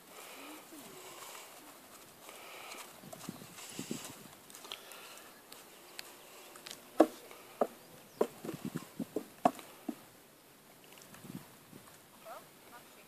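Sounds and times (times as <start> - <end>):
hooves knocking on wooden platform: 7.0 - 10.0.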